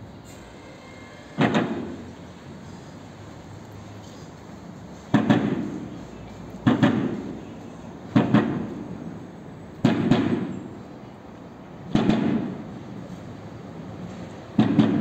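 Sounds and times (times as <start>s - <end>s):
loud double knocks: 1.4s - 2.0s, 5.1s - 5.8s, 8.1s - 8.8s, 9.8s - 10.5s, 11.9s - 12.6s, 14.6s - 15.0s.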